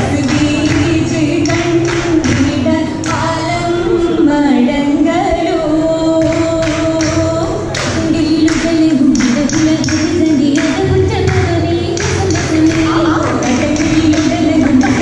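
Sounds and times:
hand claps keeping time: 0:00.0 - 0:03.3, 0:06.2 - 0:15.0
women singing in unison: 0:00.0 - 0:15.0.

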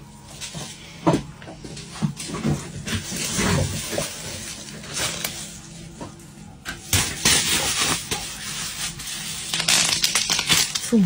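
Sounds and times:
bubble wrap crinkling and popping: 0:02.7 - 0:11.0.

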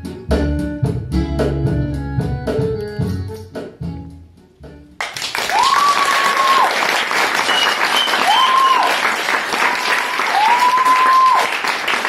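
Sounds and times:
audience applause: 0:05.0 - 0:12.0
long whistles: 0:07.4 - 0:08.9.

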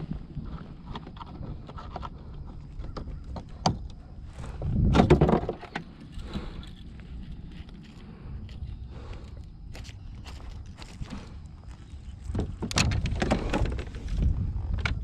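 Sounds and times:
clicks and knocks in plastic kayak: 0:04.9 - 0:06.0, 0:12.2 - 0:14.2.

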